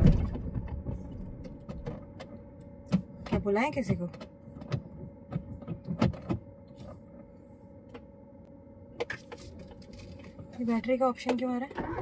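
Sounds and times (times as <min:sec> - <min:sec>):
clicks and knocks in car cabin: 0:00.0 - 0:07.0
steady hum: 0:00.0 - 0:11.7.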